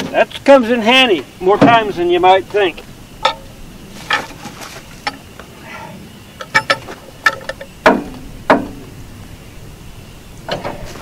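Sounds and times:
metal hook knocking on log: 6.4 - 8.8.

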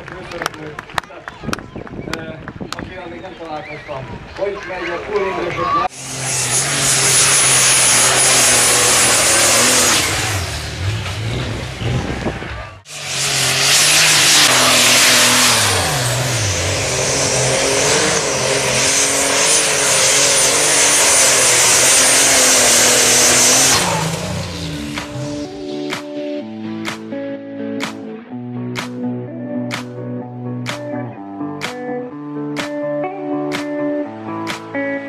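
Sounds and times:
tractor engines labouring: 5.1 - 26.0
music: 25.0 - 35.0.

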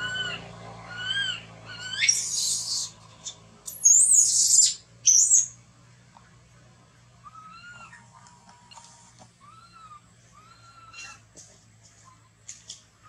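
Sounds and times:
baby monkey crying: 0.0 - 3.0, 9.4 - 11.2.

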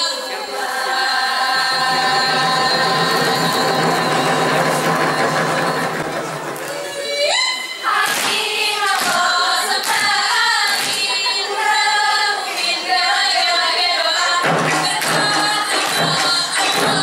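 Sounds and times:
girls singing a chant in unison: 0.0 - 17.0
frame drums and fast percussion: 1.6 - 7.2, 14.3 - 17.0
sharp hand claps: 8.0 - 11.1, 14.5 - 17.0.

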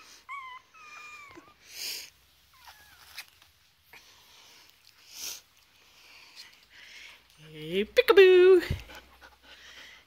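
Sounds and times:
puppy squeak: 0.0 - 1.6
puppy whining: 0.0 - 4.2
soft rustles of handling: 0.0 - 7.8.

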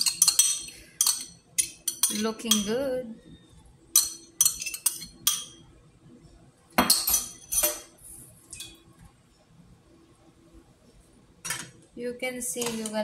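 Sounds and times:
metal spoon clinking on bowl: 0.0 - 2.8, 4.0 - 5.6.

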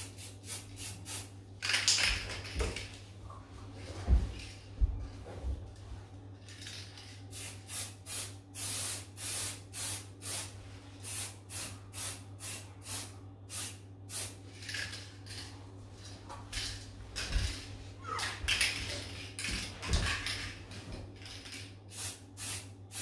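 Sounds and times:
spray paint can hissing: 0.1 - 1.3, 7.3 - 10.5, 21.9 - 23.0.

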